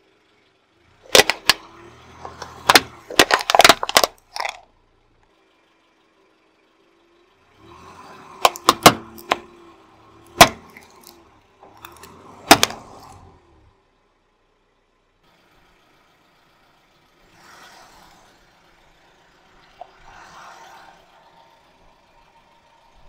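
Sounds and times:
faint low engine hum: 0:00.0 - 0:23.0
plastic cracking under a tyre: 0:01.1 - 0:04.6, 0:11.8 - 0:13.1.

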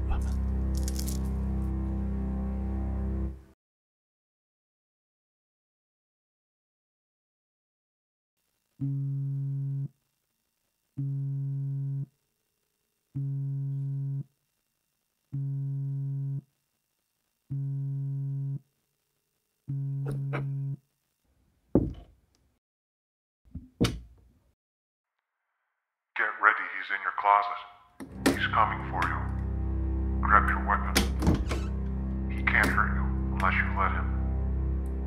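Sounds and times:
phone vibrating on wooden table: 0:08.8 - 0:09.9, 0:11.0 - 0:12.1, 0:13.2 - 0:14.3, 0:15.3 - 0:16.4, 0:17.5 - 0:18.6, 0:19.7 - 0:20.8
sharp knocks: 0:21.8 - 0:22.1.

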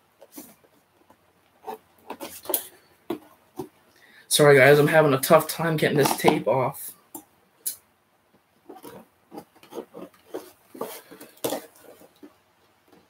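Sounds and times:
fingers scratching packing tape: 0:08.7 - 0:12.3.

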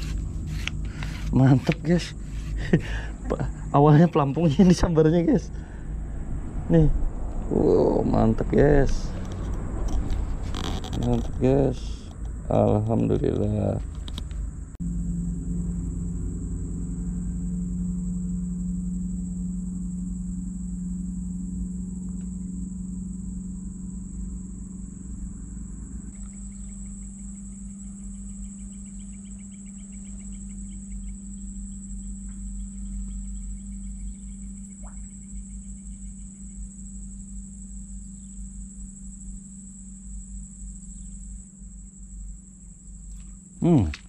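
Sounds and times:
high-pitched insect drone: 0:00.0 - 0:44.0
steady low hum: 0:00.0 - 0:44.0
fast pulsing trill: 0:14.8 - 0:26.6.

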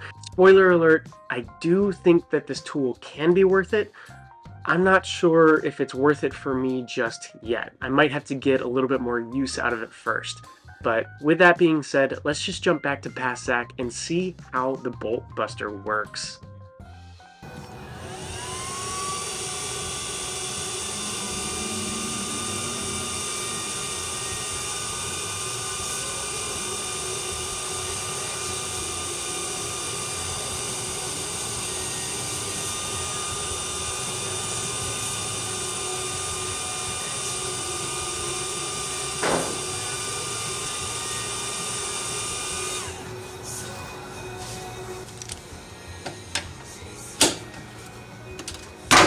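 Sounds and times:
induction heater whine: 0:17.4 - 0:49.0.

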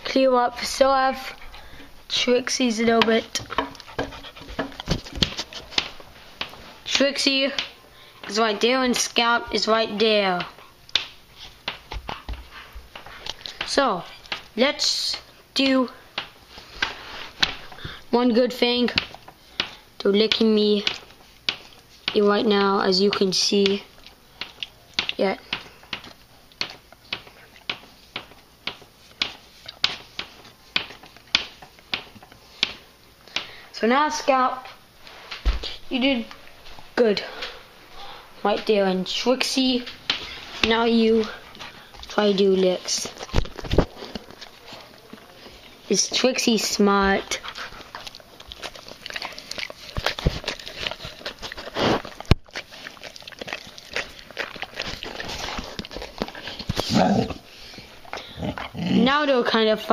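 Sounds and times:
dogs licking wet smacks: 0:40.2 - 0:56.9.

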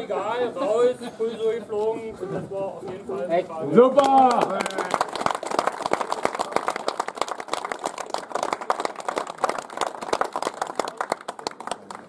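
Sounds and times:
people applauding: 0:03.9 - 0:12.0.

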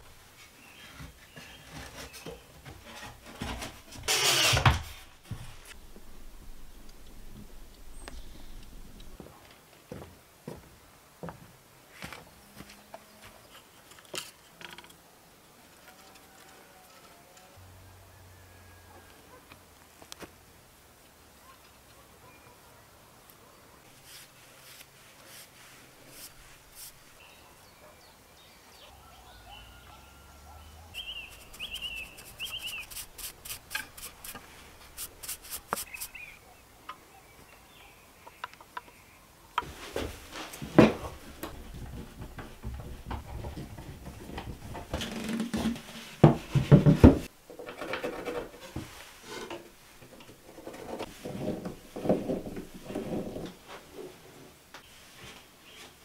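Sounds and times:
hand tool scraping wood: 0:00.7 - 0:05.8, 0:31.0 - 0:36.4.

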